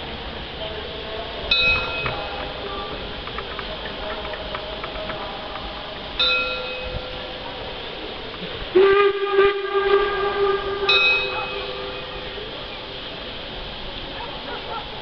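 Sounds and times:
bell-like ring: 1.5s - 2.9s, 6.2s - 7.1s, 10.9s - 12.2s
steam whistle blowing: 8.7s - 12.9s.

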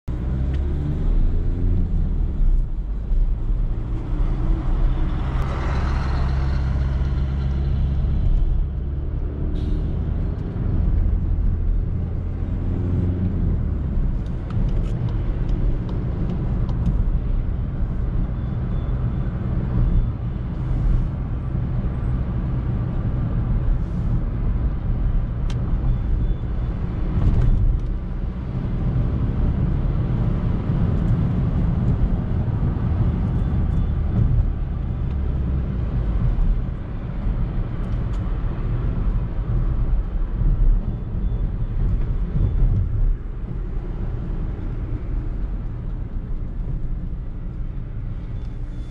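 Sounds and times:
car engine and road rumble: 0.0s - 48.9s.

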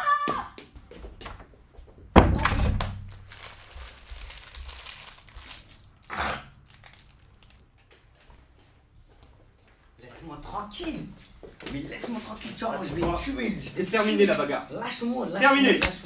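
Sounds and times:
wrapper crinkling: 3.0s - 7.8s.

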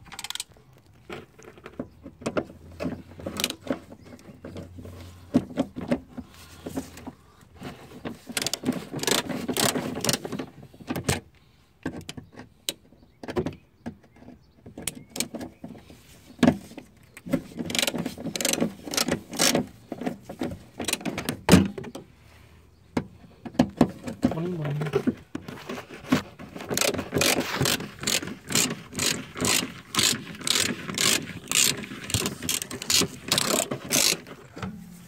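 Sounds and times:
socket wrench clicking: 26.8s - 34.3s.

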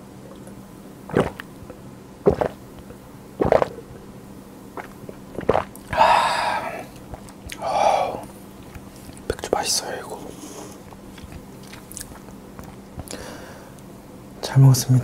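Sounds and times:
breathy exhales: 5.9s - 6.9s, 7.6s - 8.3s, 13.0s - 13.8s.

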